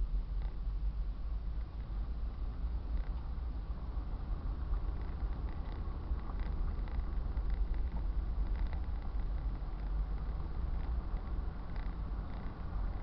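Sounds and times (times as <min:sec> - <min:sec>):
car road and engine rumble: 0:00.0 - 0:13.0
faint ticks: 0:00.3 - 0:00.6, 0:02.8 - 0:03.4, 0:04.6 - 0:13.0.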